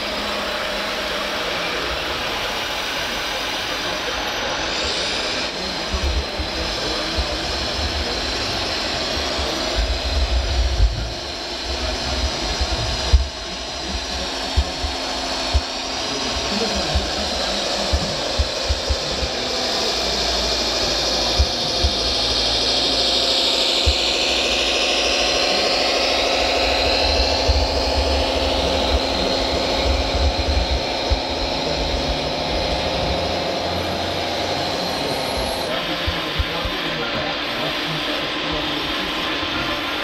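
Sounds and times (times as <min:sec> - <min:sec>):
electric motor and gearbox whine: 0:00.0 - 0:40.0
low thumps: 0:09.4 - 0:19.6, 0:20.6 - 0:34.7.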